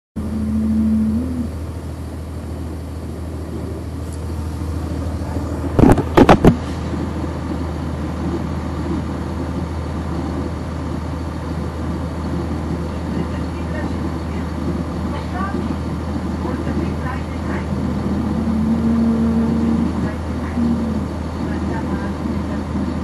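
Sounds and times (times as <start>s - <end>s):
bus diesel engine humming: 0.1s - 23.0s
short steady tone: 0.2s - 1.5s
loud knocks: 5.8s - 6.6s.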